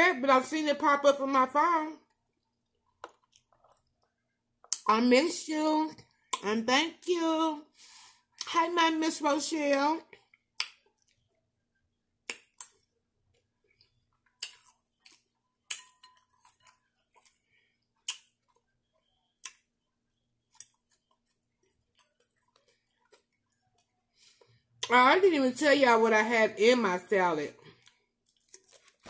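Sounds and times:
chewing crunchy salad: 12.2 - 19.7, 20.4 - 24.9, 27.7 - 29.0.

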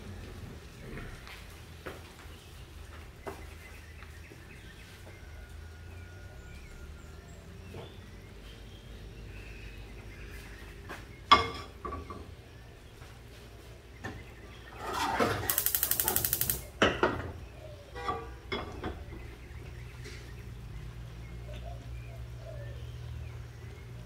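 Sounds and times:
frying pan clanking on metal grate: 15.3 - 17.3.

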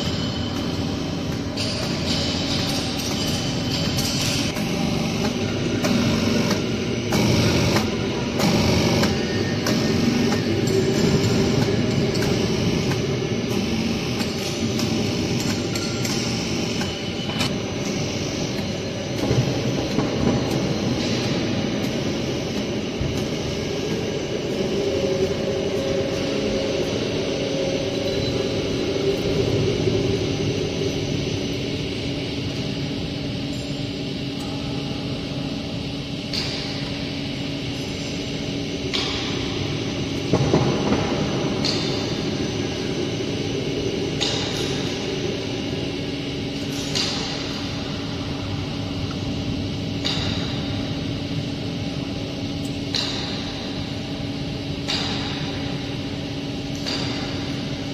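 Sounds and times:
hydraulic pump humming: 0.0 - 33.7
machine whine: 0.0 - 57.9.

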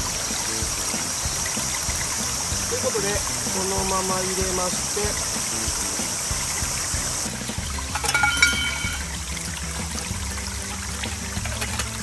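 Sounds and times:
stream water trickling: 0.0 - 12.0
metallic clinks of mess tin: 7.9 - 9.0.

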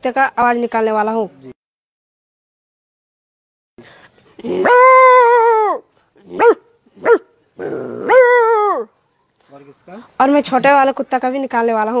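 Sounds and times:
boy imitating dog barking: 4.4 - 8.9.

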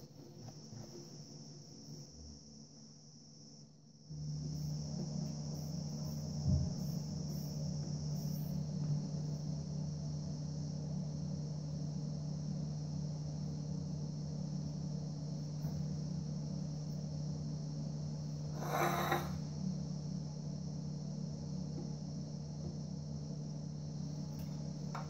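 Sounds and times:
constant high hiss: 0.0 - 25.0
low electrical hum: 0.0 - 25.0.

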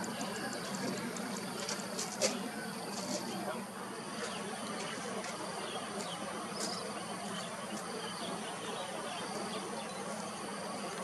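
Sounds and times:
insects buzzing: 0.0 - 11.0
faint chirps: 2.3 - 11.0.

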